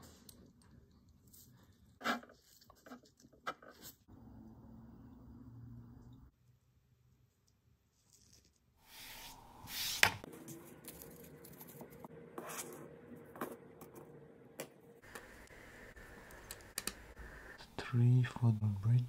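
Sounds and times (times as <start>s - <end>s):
faint steady hum: 10.4s - 19.0s.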